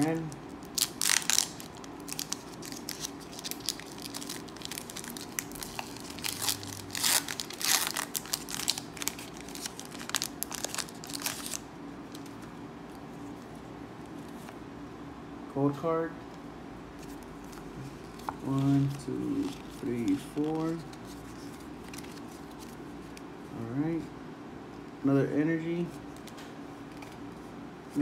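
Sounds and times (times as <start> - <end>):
foil wrapper crinkling and tearing: 0.0 - 11.6.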